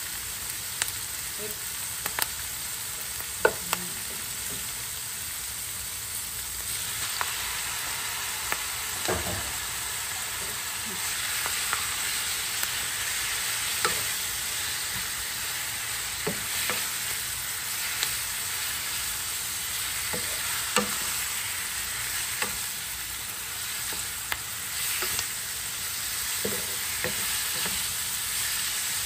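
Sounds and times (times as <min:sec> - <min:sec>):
meat sizzling in hot oil: 0:00.0 - 0:29.0
wooden spatula scraping a pan: 0:13.0 - 0:17.2, 0:26.1 - 0:28.8.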